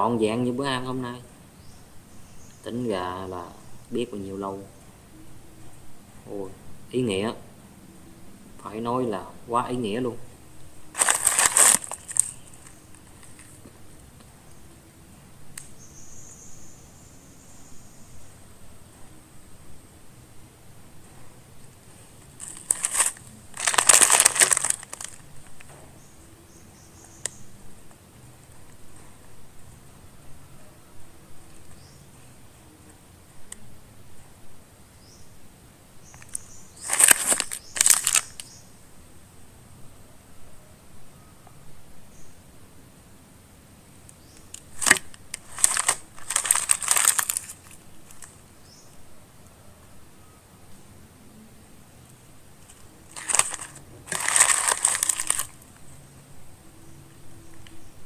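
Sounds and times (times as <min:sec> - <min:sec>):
crab shell cracking: 0:22.4 - 0:25.7, 0:44.5 - 0:48.4, 0:53.1 - 0:55.6.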